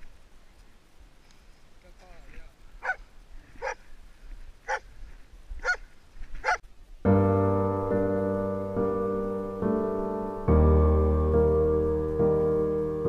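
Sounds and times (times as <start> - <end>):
dog barking: 2.8 - 3.0, 3.6 - 3.8, 5.6 - 5.8, 6.4 - 6.6
piano music: 7.1 - 13.0.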